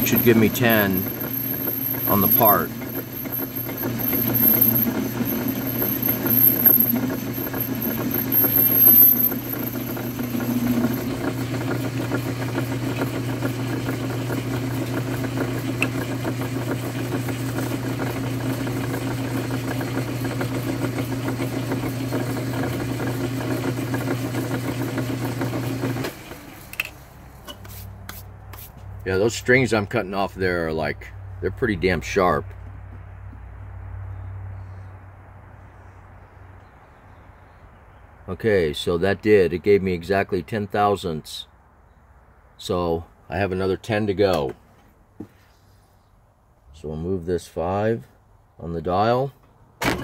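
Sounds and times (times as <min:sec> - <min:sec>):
cutting tool high whine: 0:00.0 - 0:26.2
metal lathe motor hum: 0:00.0 - 0:26.2.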